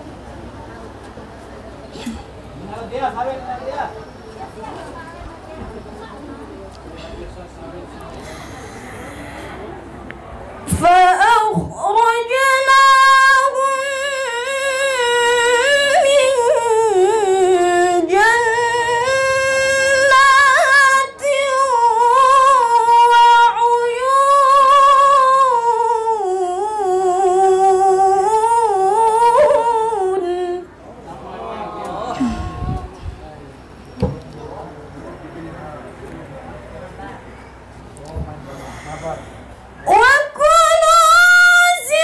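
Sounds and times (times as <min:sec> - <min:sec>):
woman reciting melodically: 0:10.7 - 0:30.8, 0:39.8 - 0:42.0.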